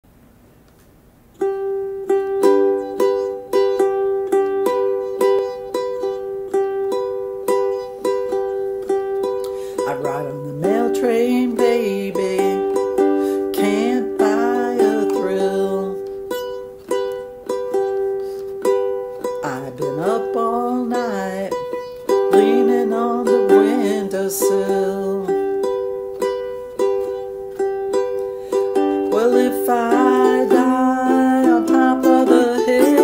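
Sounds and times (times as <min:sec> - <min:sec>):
plucked string instrument tune: 0:01.4 - 0:33.0
woman singing: 0:09.7 - 0:16.7, 0:18.8 - 0:25.8, 0:28.6 - 0:33.0.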